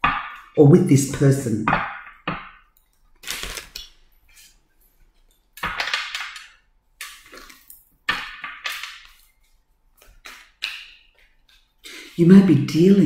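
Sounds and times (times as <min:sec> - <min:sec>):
cards shuffling and slapping: 0:03.2 - 0:03.8, 0:05.6 - 0:11.7.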